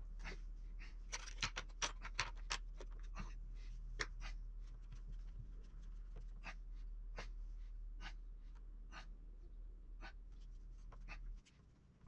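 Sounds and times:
low steady hum: 0.0 - 12.0
tools clicking and tapping: 1.1 - 3.1.

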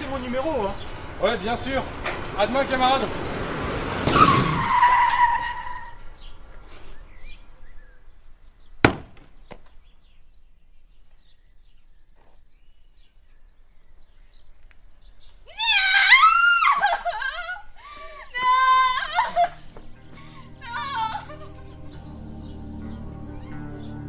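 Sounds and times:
car crash with screeching tone: 3.9 - 6.0
sharp knock: 8.8 - 9.6.

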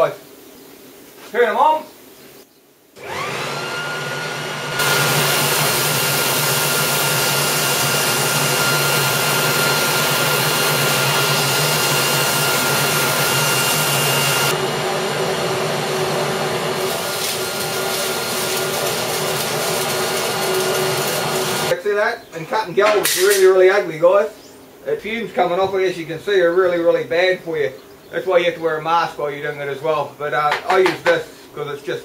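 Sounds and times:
leaf blower whining: 3.0 - 21.8
plasma cutter hissing: 16.8 - 21.7.

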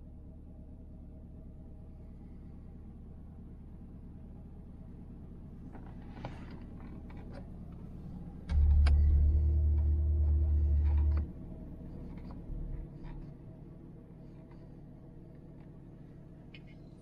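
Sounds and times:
car engine idling: 0.0 - 17.0
loud low rumble: 8.5 - 11.3.

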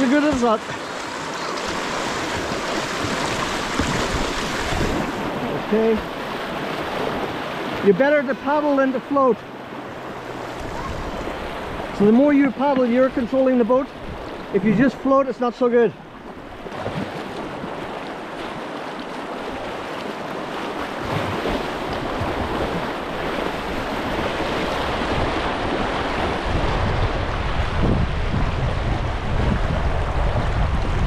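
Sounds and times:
wind buffeting microphone: 0.0 - 7.8, 9.4 - 13.3, 20.6 - 31.0
river water rushing and splashing: 0.0 - 31.0.

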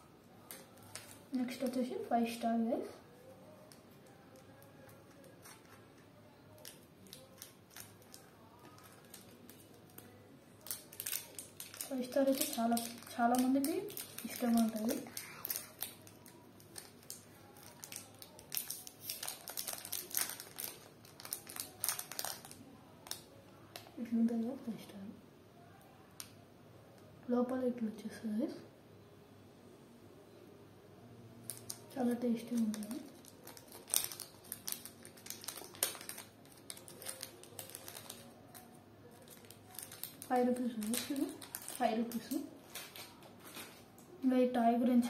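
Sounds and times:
foil wrapper crinkling: 0.4 - 1.8, 3.5 - 23.9, 31.5 - 44.0.

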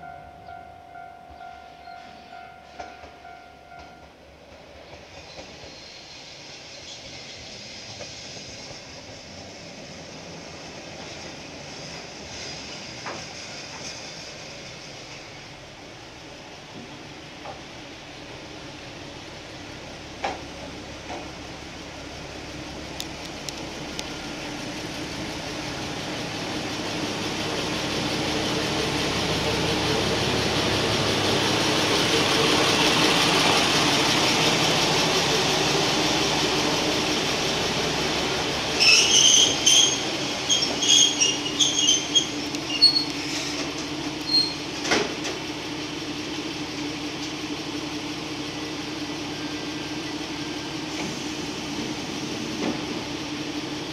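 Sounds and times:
diesel railcar engine: 0.0 - 53.9
high-pitched brake squeals: 38.8 - 43.6, 44.2 - 44.7.

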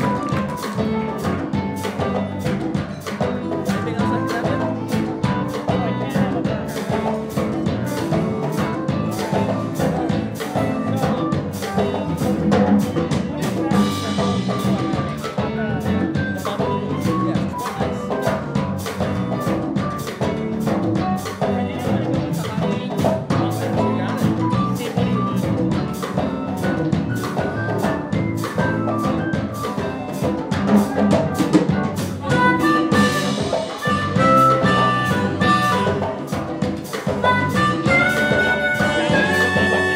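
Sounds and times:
drum kit beat: 0.0 - 39.9
electric bass: 0.0 - 39.9
harmonica: 32.2 - 39.9
saxophone: 32.2 - 39.9.

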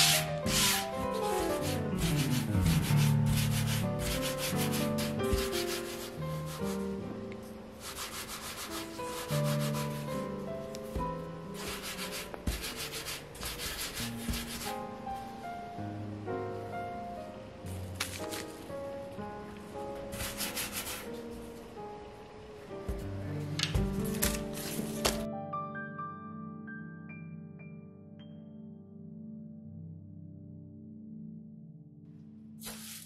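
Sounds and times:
hands rubbing dough on mat: 0.0 - 6.9, 7.8 - 10.2, 10.8 - 14.8, 17.7 - 18.6, 20.1 - 21.5
piano music: 0.0 - 32.7.

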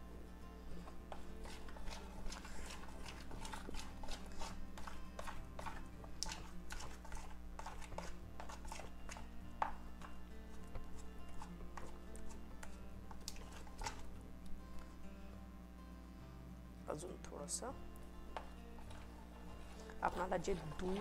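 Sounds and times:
spoon scraping plastic bowl: 1.1 - 14.1, 18.4 - 21.0.

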